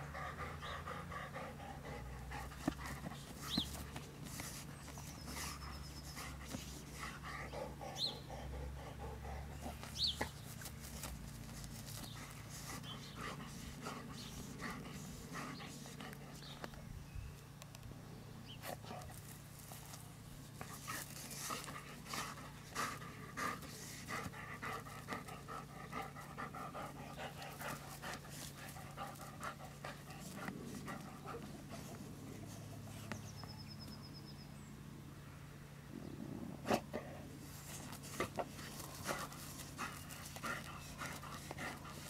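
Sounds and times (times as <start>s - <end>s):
dog panting: 0.0s - 16.8s, 18.7s - 33.2s, 36.7s - 42.0s
dog snuffling: 1.9s - 16.8s, 36.6s - 42.0s
dog scratching at soil: 2.4s - 8.1s, 9.6s - 16.8s, 18.5s - 33.2s, 36.7s - 42.0s.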